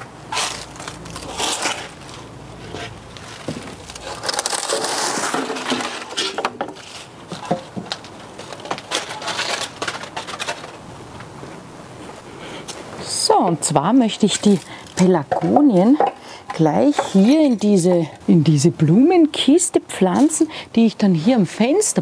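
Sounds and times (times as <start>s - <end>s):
dry leaves crackling and rustling: 0.3s - 10.8s
plastic pots knocking and clattering: 3.4s - 10.7s, 15.2s - 17.4s.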